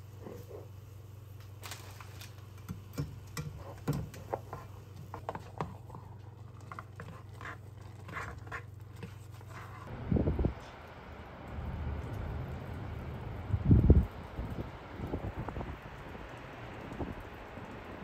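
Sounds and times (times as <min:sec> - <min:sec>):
broth simmering in a pan: 0:00.0 - 0:10.0
steady low hum: 0:00.0 - 0:18.0.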